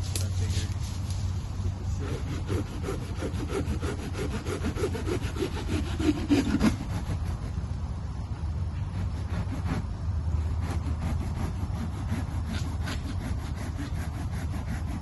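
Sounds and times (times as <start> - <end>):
hand saw cutting wood: 2.0 - 7.6, 8.9 - 9.8, 10.6 - 15.0.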